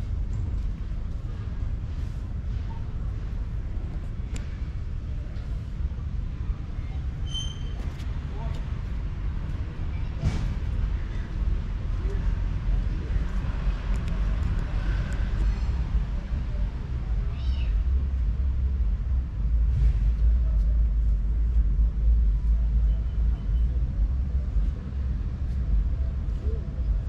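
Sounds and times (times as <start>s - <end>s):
steady low rumble: 0.0s - 27.0s
kitten meowing: 17.3s - 17.8s.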